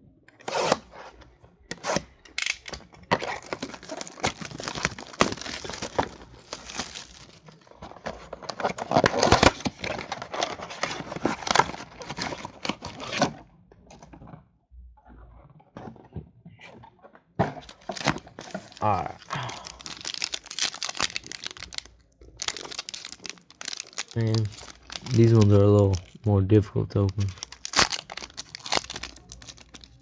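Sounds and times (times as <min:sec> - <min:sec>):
plastic wrap crinkling and tearing: 0:02.3 - 0:13.2, 0:17.6 - 0:30.0.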